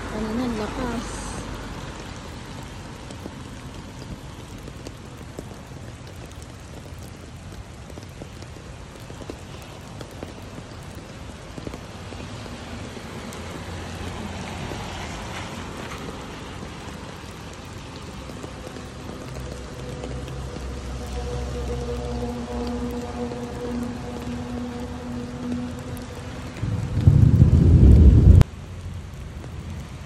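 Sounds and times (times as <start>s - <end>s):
steady rain falling: 0.0s - 30.0s
low rumble: 22.1s - 29.1s.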